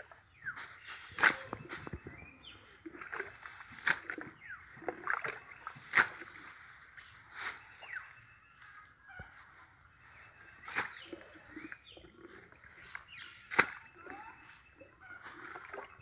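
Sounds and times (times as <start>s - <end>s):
jug scooping muddy water: 0.0s - 8.6s, 9.9s - 16.0s
sharp water splashes: 2.9s - 6.4s, 13.4s - 14.2s.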